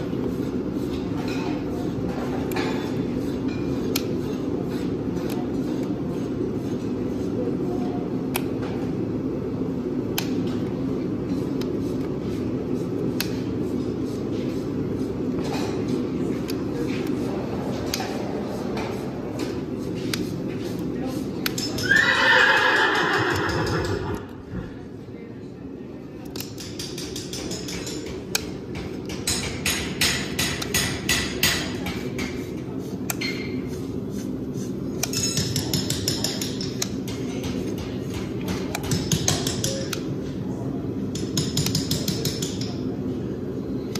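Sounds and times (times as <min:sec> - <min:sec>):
low background hum: 0:00.0 - 0:43.9
metal tools tapping on hoof: 0:21.4 - 0:22.2, 0:23.1 - 0:24.2, 0:26.4 - 0:32.4, 0:35.0 - 0:40.1, 0:41.1 - 0:42.8.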